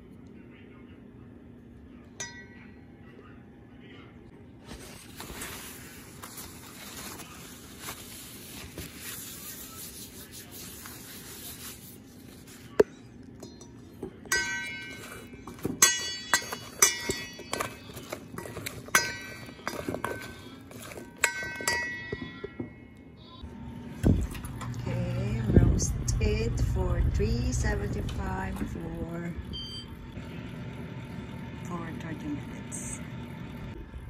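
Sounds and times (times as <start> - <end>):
soft rustling scrape: 4.6 - 12.8
spoon clinking on steel bowl: 13.4 - 22.6.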